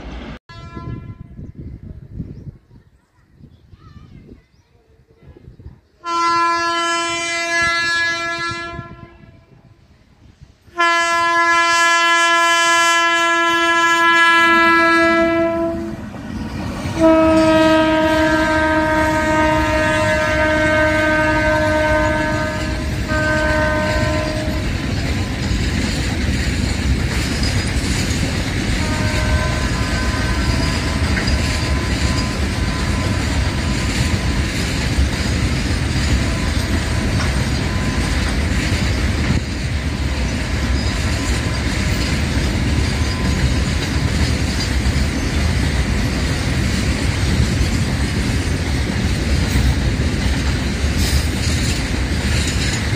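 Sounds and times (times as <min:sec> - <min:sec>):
locomotive air horn blasts: 0:00.5 - 0:01.4, 0:06.0 - 0:09.6, 0:10.7 - 0:16.0, 0:17.0 - 0:24.7, 0:28.8 - 0:34.6
freight wagons rumbling past: 0:15.5 - 0:52.9.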